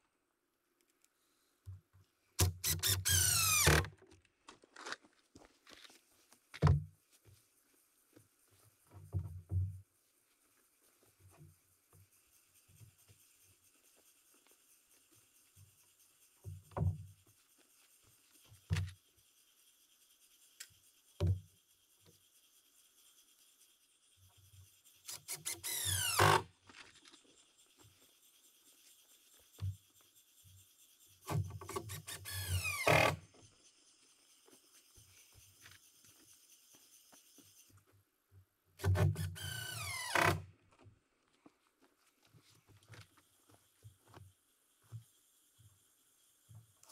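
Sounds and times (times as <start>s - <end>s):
power drill driving screws: 2.4s - 3.9s, 25.1s - 26.4s, 31.7s - 33.2s, 38.8s - 40.4s.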